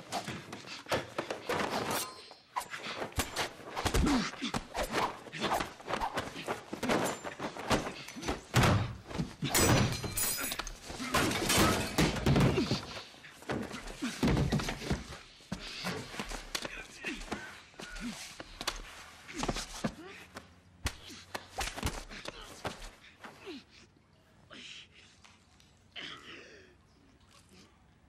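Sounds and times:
strained grunts: 2.5s - 8.5s, 10.2s - 18.6s
punches and thuds: 3.1s - 10.3s, 11.0s - 15.1s
bodies slamming against tiles: 6.1s - 10.2s, 10.9s - 15.8s.

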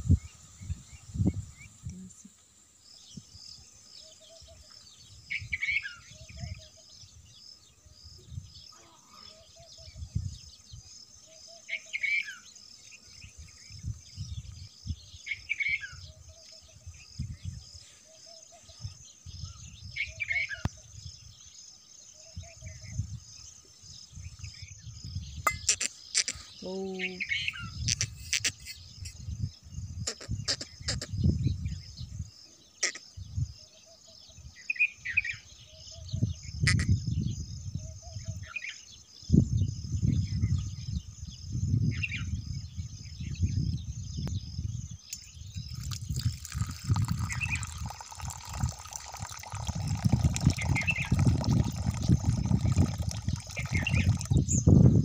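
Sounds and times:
bird chirps: 2.9s - 54.9s
insects buzzing: 44.6s - 54.8s
water pouring into a dish: 45.6s - 54.4s.

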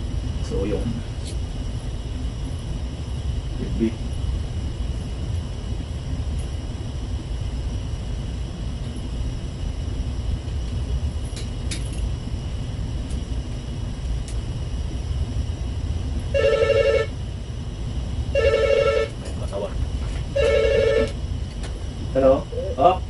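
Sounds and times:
steady low rumble: 0.0s - 23.0s
mobile phone ringing: 16.4s - 17.1s, 18.4s - 19.2s, 20.4s - 21.2s.

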